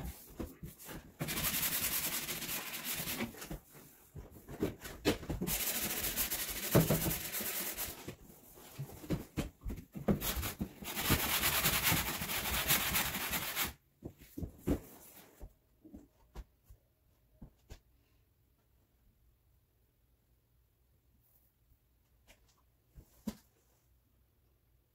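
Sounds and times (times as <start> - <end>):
sandpaper rasping on wood: 1.2 - 3.2, 5.5 - 8.0, 10.4 - 13.7.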